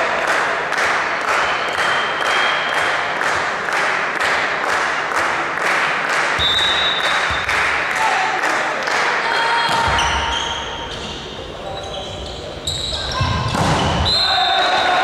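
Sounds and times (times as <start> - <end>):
crowd clapping and chanting: 0.0 - 9.4
short high whistle: 6.4 - 7.3.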